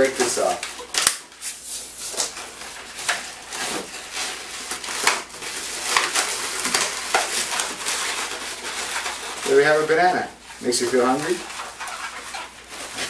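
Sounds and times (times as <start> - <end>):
balloons rubbing and squeaking: 0.0 - 13.0.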